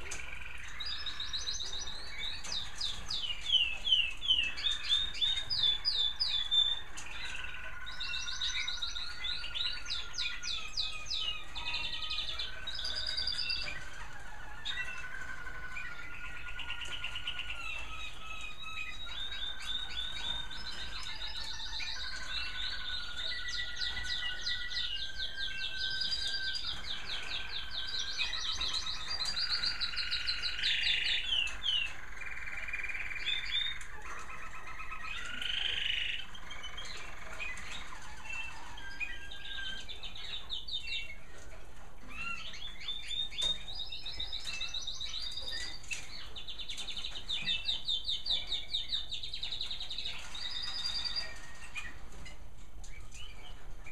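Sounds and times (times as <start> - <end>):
canaries singing trills: 0.0 - 53.9.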